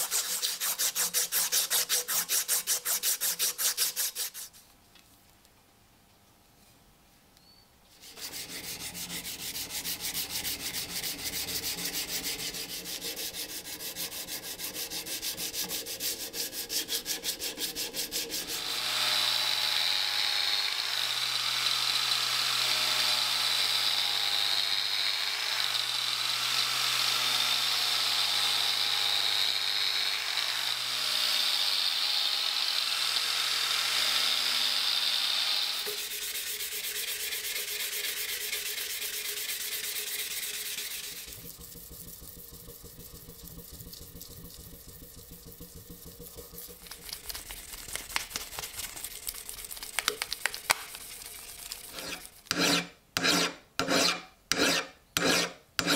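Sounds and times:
sanding metal: 0.0s - 4.6s, 7.9s - 19.2s, 35.8s - 55.9s
low steady hum: 41.2s - 52.5s.

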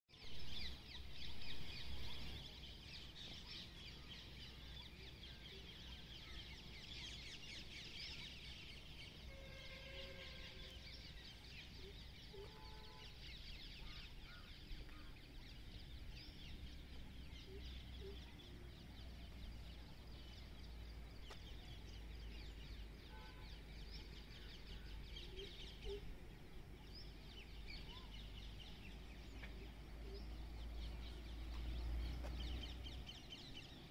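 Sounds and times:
birds chirping and calling: 0.2s - 33.9s.

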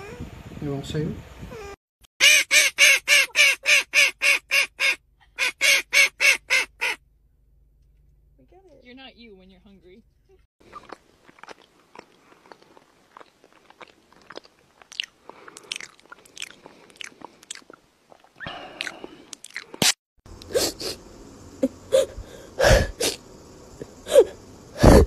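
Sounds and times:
dog chewing and licking: 10.7s - 18.3s.

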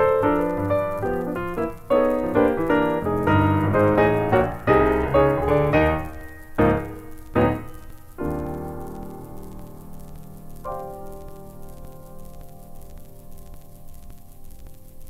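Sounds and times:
solo piano music: 0.0s - 15.0s.

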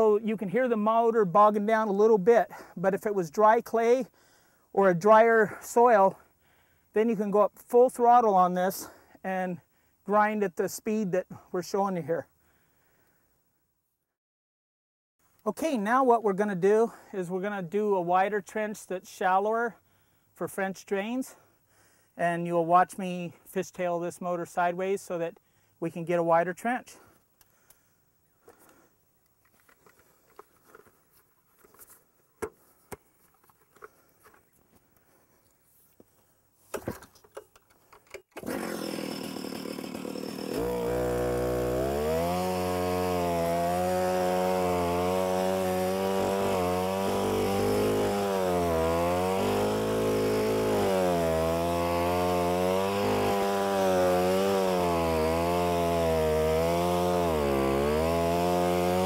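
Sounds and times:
cutter wheel cutting soil: 37.9s - 59.0s
stump grinder engine running: 38.3s - 59.0s.

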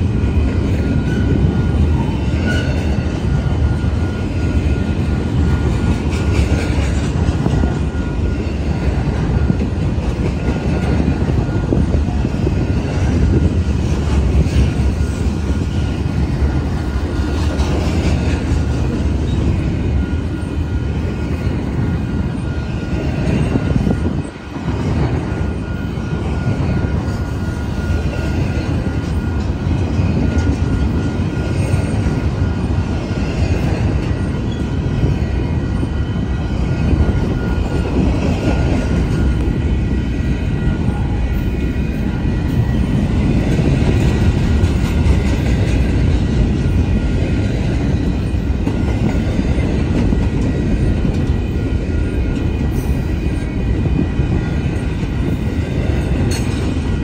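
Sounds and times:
steel wheels rumbling on rails: 0.0s - 57.0s
faint high ringing tone: 7.6s - 9.8s, 18.9s - 43.7s.

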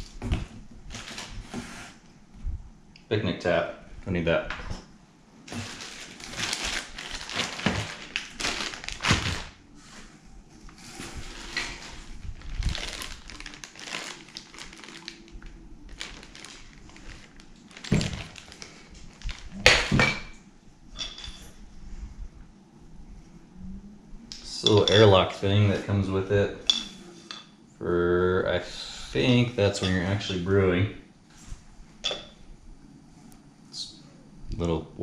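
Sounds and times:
plastic bags rustling: 0.0s - 2.0s, 5.4s - 20.1s.

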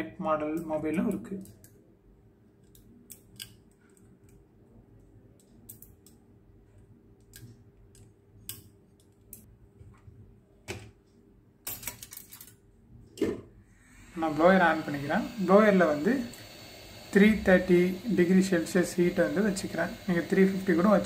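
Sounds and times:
faint steady hum: 12.3s - 21.0s.

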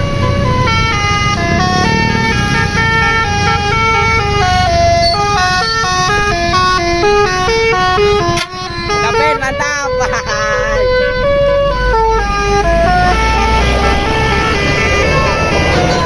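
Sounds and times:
engine and road rumble: 0.0s - 16.0s
musical bus horn melody: 0.0s - 16.0s.

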